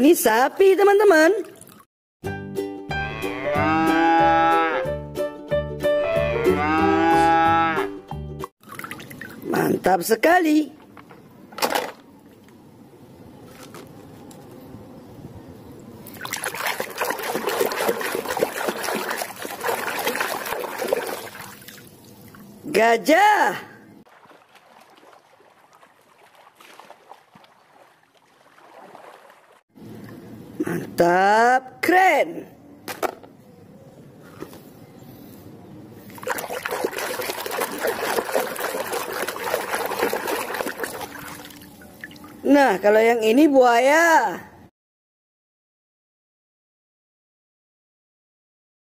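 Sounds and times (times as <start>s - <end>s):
water splashing in a tub: 1.3s - 1.9s, 8.6s - 9.7s, 16.0s - 22.6s, 24.1s - 29.7s, 36.1s - 42.5s.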